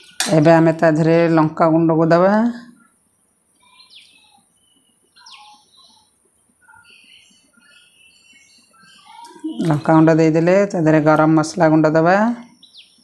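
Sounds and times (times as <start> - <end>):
faint birds chirping: 0.0 - 13.0
bird falling calls: 3.6 - 9.9.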